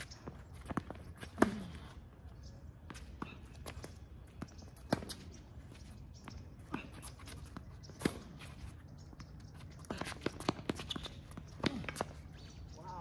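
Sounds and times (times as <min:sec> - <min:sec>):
footsteps and shoe scuffs on court: 0:00.0 - 0:13.0
tennis ball bouncing: 0:02.9 - 0:05.3, 0:07.3 - 0:08.5.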